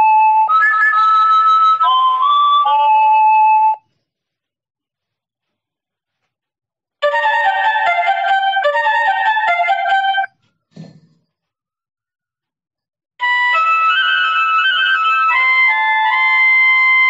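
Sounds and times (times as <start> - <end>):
electronic doorbell melody: 0.3 - 3.8, 7.0 - 10.3.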